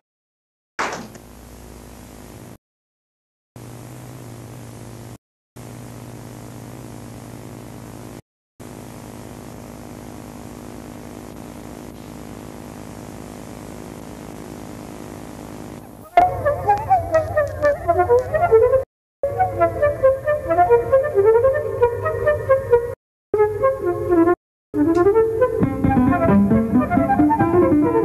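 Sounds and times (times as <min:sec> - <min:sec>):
low buzzing hum: 0:01.1 - 0:02.6, 0:03.6 - 0:16.1.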